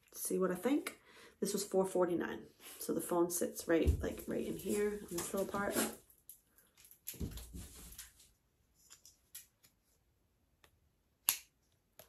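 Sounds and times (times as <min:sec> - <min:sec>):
soft thump and rustle: 0:07.2 - 0:08.2.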